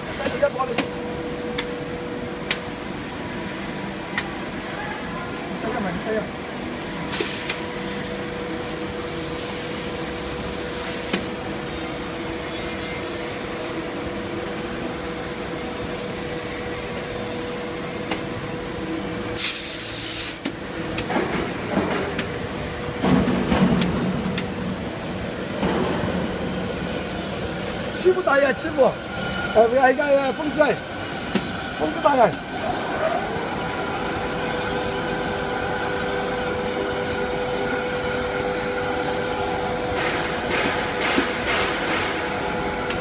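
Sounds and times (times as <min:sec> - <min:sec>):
machine hum with high whine: 0:00.0 - 0:43.0
loud air hiss burst: 0:07.1 - 0:07.6, 0:09.1 - 0:11.3, 0:19.4 - 0:20.5.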